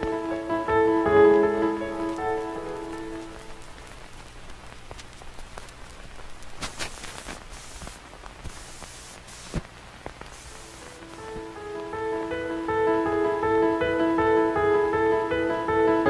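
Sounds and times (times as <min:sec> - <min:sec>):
crackling static with clicks: 0:00.0 - 0:15.4
bursts of hiss: 0:01.8 - 0:12.5.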